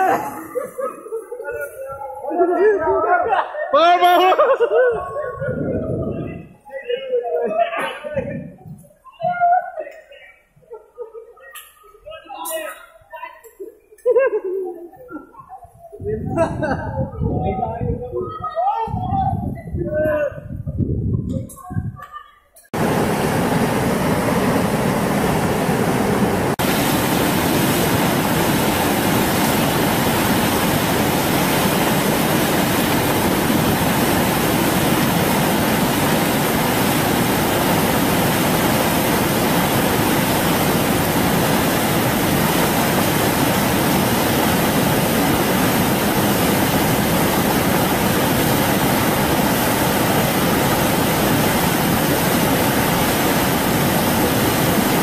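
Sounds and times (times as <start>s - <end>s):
rushing flood torrent: 0.0s - 6.5s, 22.8s - 55.0s.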